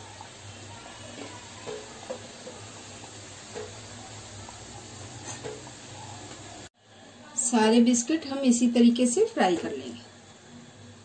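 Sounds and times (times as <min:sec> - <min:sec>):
biscuits sizzling in hot oil: 0:00.0 - 0:11.0.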